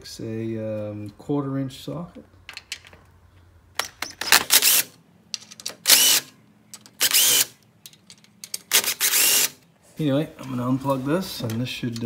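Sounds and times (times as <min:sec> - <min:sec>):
cordless drill whining: 0:04.5 - 0:04.9, 0:05.9 - 0:06.3, 0:07.0 - 0:07.6, 0:08.7 - 0:09.6.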